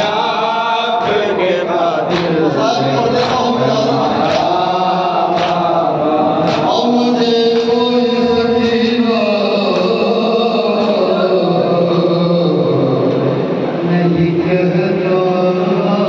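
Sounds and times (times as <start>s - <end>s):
men chanting a lament: 0.0s - 16.0s
chest slaps: 2.1s - 2.4s, 6.4s - 6.7s.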